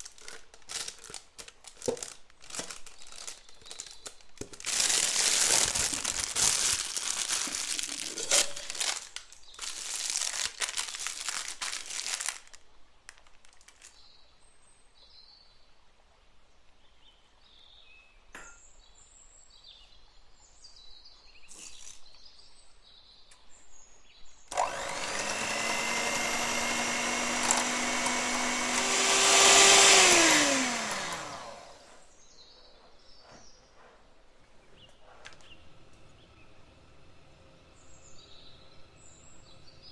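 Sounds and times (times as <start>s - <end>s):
plastic bag crinkling: 0.0s - 14.0s, 24.5s - 32.0s
electric hand mixer whipping: 4.5s - 8.8s, 24.5s - 32.1s.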